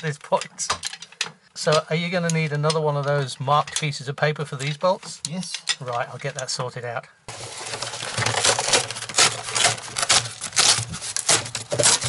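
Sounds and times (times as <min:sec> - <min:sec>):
cardboard crackling and rustling: 0:07.3 - 0:12.0.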